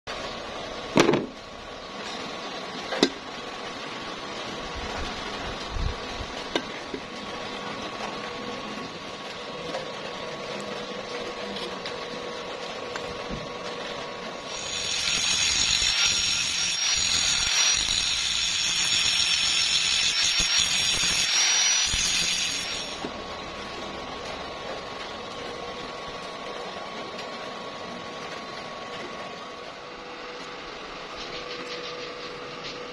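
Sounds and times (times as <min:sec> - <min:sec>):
angle grinder grinding steel: 0:14.5 - 0:23.1.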